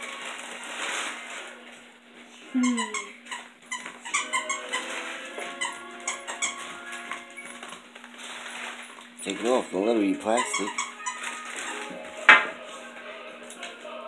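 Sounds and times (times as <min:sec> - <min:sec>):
chew bone squeaks: 0:05.6 - 0:06.6, 0:10.4 - 0:11.8.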